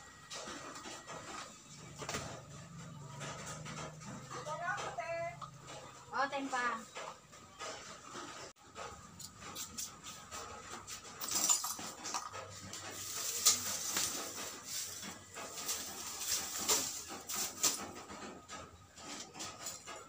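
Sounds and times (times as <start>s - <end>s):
charcoal lumps clinking: 10.7s - 20.0s
plastic bag crinkling: 12.7s - 18.0s.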